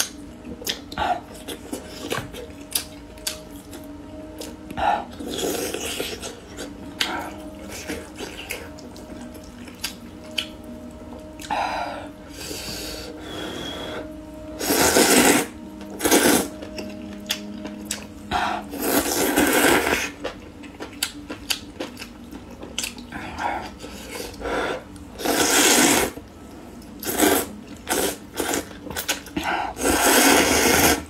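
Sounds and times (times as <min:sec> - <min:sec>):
wet chewing: 0:00.0 - 0:11.6, 0:14.6 - 0:31.0
noodle slurping: 0:25.2 - 0:26.2.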